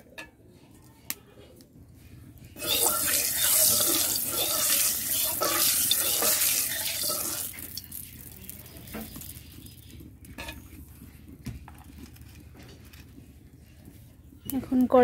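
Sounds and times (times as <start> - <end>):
hot oil sizzling: 2.6 - 9.9.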